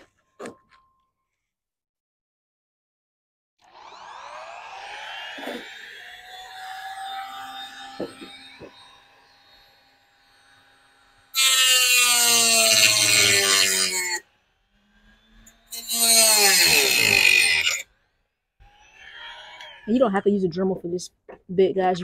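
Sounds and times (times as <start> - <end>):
rotary tool cutting metal grille: 3.6 - 20.0.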